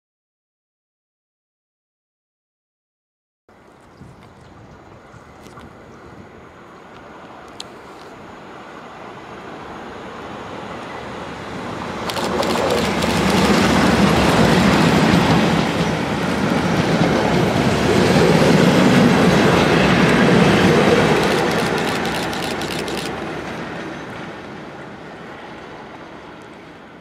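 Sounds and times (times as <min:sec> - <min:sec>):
diesel locomotive engine: 0:04.5 - 0:27.0
train passing: 0:04.5 - 0:27.0
wheels clicking on rails: 0:12.0 - 0:17.5, 0:18.2 - 0:23.6.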